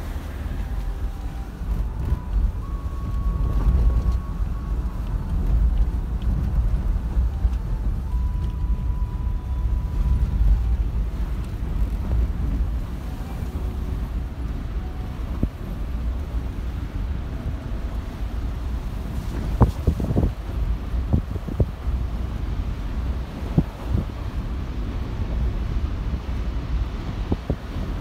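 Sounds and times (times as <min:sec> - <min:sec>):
vehicle engine rumble: 0:00.0 - 0:28.0
wind buffeting microphone: 0:00.0 - 0:28.0.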